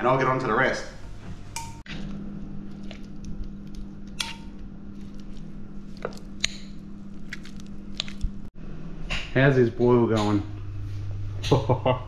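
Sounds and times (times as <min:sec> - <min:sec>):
low hum: 0:01.0 - 0:12.0.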